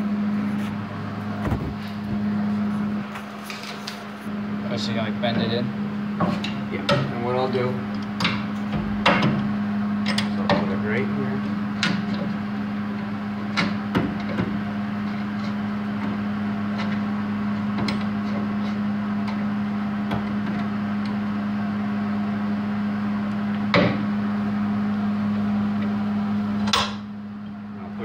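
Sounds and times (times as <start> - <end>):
machine hum and hiss: 0.0 - 28.0
sharp metal knocks: 8.2 - 10.7.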